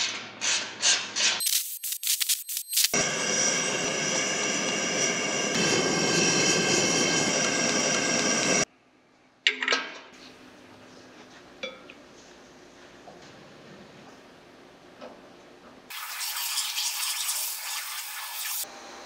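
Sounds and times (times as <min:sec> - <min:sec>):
gas forge burner and blower: 0:03.0 - 0:08.7.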